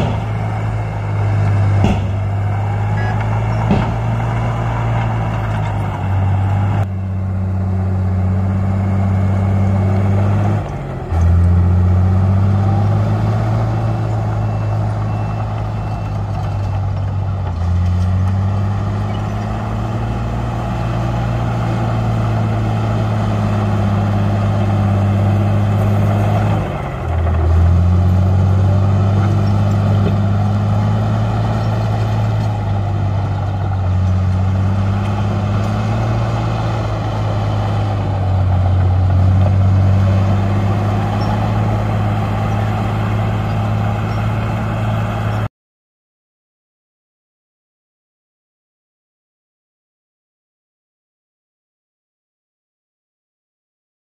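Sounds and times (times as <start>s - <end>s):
heavy diesel engine: 0.0s - 45.5s.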